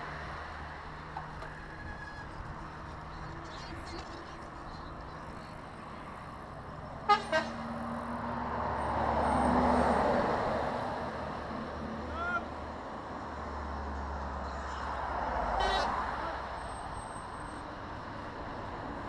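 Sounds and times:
truck passing by: 0.0s - 19.0s
horn toots: 7.0s - 7.6s, 15.5s - 16.0s.

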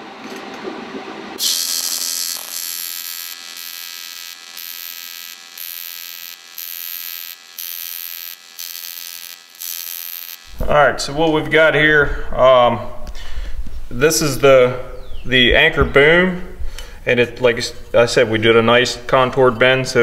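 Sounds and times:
welding arc buzzing and hissing: 1.4s - 10.8s.

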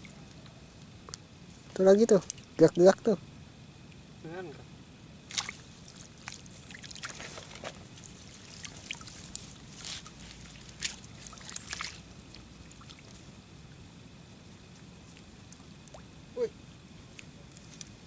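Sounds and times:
splashing and crackling at water's edge: 1.1s - 2.7s, 5.2s - 13.8s, 14.5s - 16.2s.

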